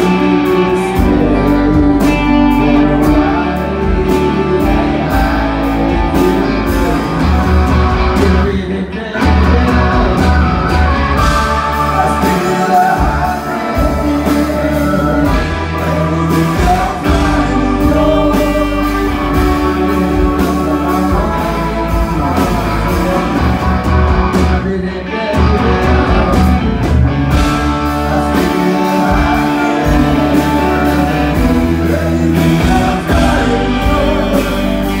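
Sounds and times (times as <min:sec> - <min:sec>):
man singing: 0:00.0 - 0:35.0
rock band playing: 0:00.0 - 0:35.0.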